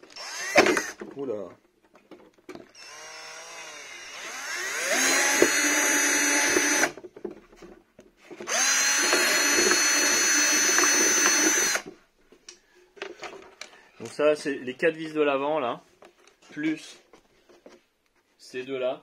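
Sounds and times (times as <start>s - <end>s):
cordless drill running: 0.0s - 1.0s, 2.7s - 7.0s, 8.5s - 11.9s.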